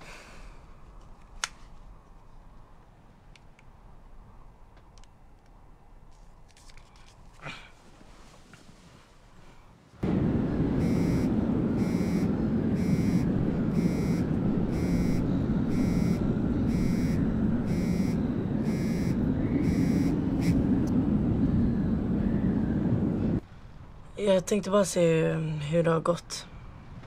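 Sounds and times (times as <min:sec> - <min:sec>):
steady low drone: 0:10.0 - 0:24.1
phone ringtone beeps: 0:10.8 - 0:20.6.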